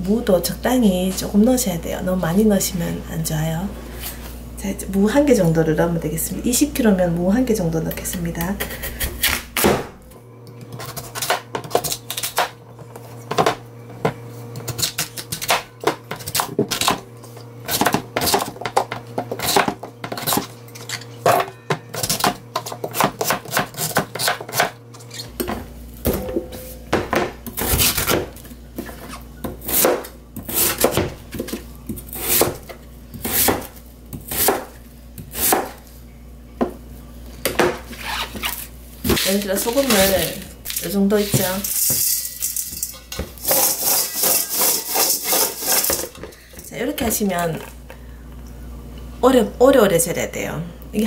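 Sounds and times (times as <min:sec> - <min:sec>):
knife chopping on plastic board: 0:22.0 - 0:24.7, 0:26.9 - 0:35.8.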